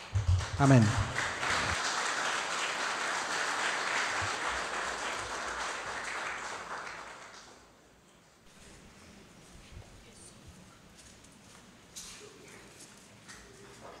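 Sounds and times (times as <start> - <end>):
congregation applauding: 0.0 - 7.8.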